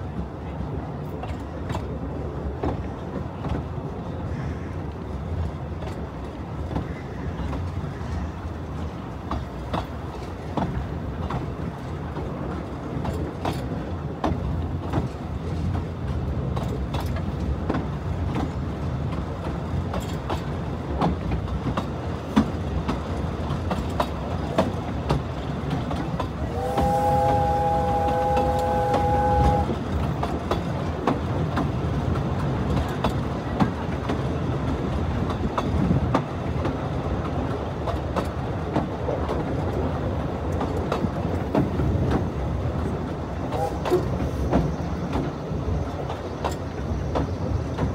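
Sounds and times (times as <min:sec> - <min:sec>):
train wheels rumbling: 0:00.0 - 0:47.9
wheels clicking over rail joints: 0:04.8 - 0:47.9
steam locomotive whistle: 0:26.4 - 0:29.8, 0:43.5 - 0:44.4.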